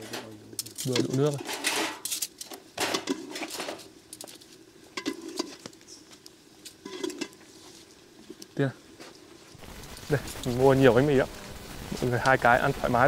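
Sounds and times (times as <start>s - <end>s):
utensil scraping pot: 0.0s - 3.9s, 4.9s - 6.1s, 6.7s - 7.9s.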